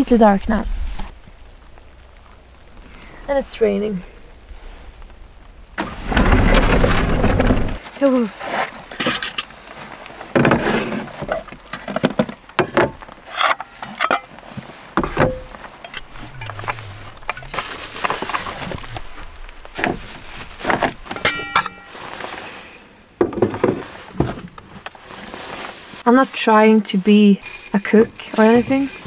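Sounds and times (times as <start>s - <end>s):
cookware knocking and clinking: 21.1s - 21.9s.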